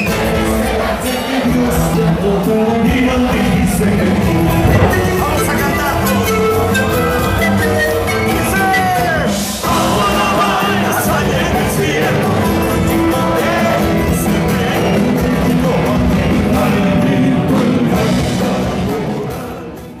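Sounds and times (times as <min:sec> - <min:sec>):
live band music with singing: 0:00.0 - 0:20.0.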